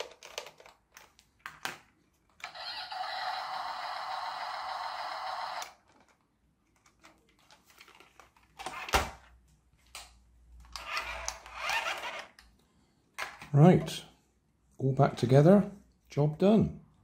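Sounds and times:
plastic toy parts clicking: 0:00.0 - 0:02.7.

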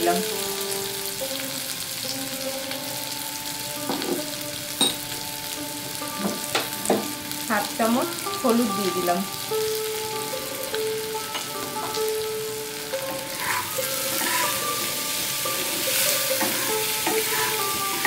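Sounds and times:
food sizzling in oil: 0:00.0 - 0:18.0
spatula scraping pan: 0:12.7 - 0:18.0.

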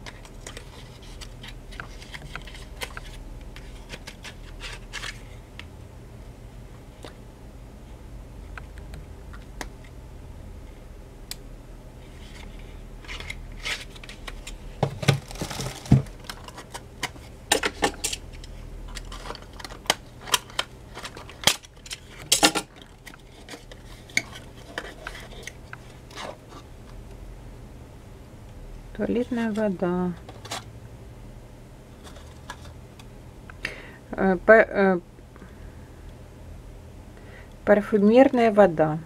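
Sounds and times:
plastic bag rustling: 0:13.3 - 0:16.7.

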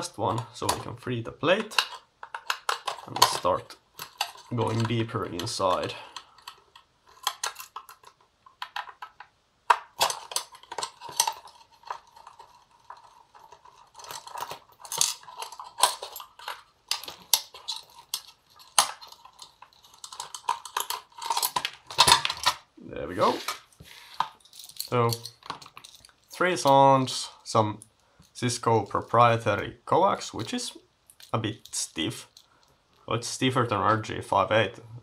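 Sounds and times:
metal parts handled on bench: 0:10.0 - 0:22.6.

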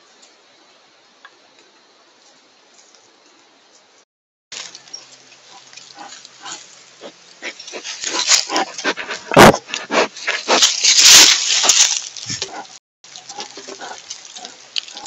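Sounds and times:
bear sniffing and snuffling: 0:04.6 - 0:15.0.

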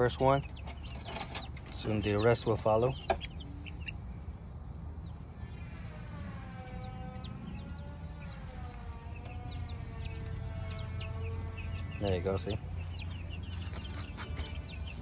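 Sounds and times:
chicks peeping: 0:00.0 - 0:15.0
siren wailing: 0:05.4 - 0:12.0.

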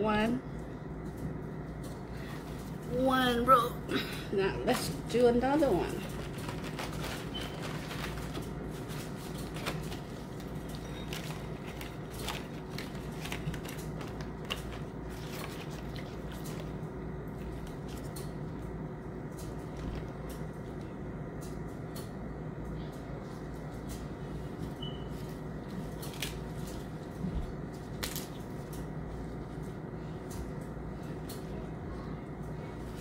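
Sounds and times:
steady low hum: 0:00.0 - 0:33.0
rice paper wrappers crinkling: 0:05.9 - 0:18.3, 0:25.7 - 0:27.1.

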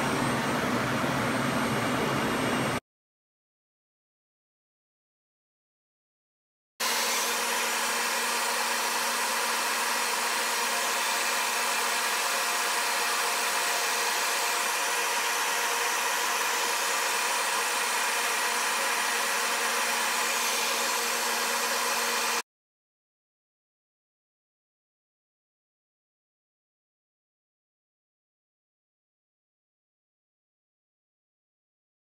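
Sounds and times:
cnc router motor whirring: 0:06.8 - 0:22.4.

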